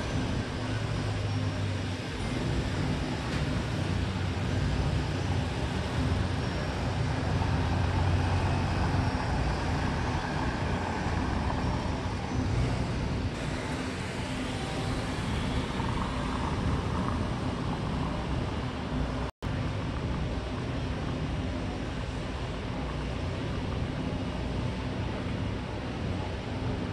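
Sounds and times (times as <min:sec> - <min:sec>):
cars going by: 0:00.0 - 0:19.3.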